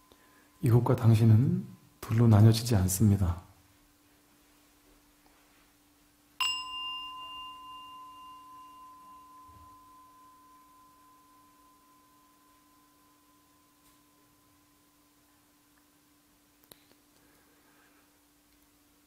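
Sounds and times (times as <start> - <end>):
singing bowl ringing: 6.4 - 15.6.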